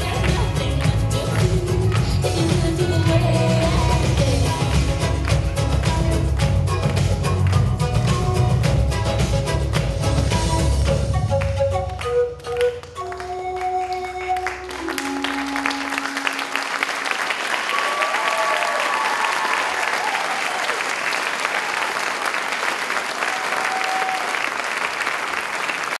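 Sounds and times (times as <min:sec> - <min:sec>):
music held notes: 0:06.6 - 0:17.0
audience applauding: 0:11.4 - 0:26.0.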